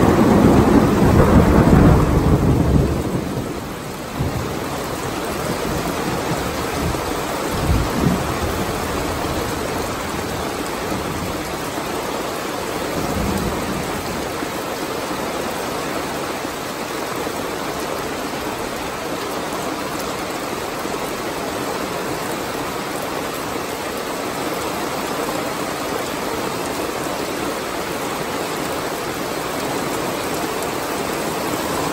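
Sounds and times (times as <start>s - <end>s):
low thunder rumbles: 0.0s - 12.0s
heavy rain falling: 0.0s - 31.9s.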